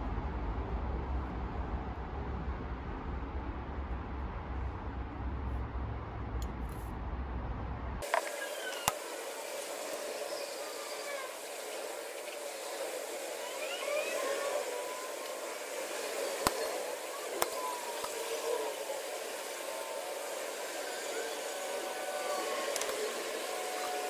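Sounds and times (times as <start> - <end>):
steady hiss: 8.0 - 24.0
faint chirps: 8.2 - 24.0.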